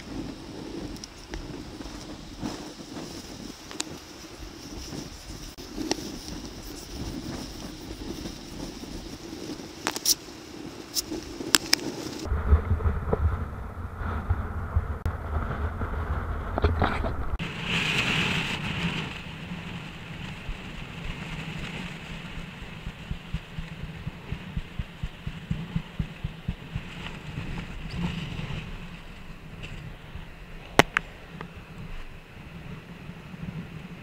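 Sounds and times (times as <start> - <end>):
low wind rumble: 0.0 - 34.0
wind buffeting microphone: 0.0 - 34.0.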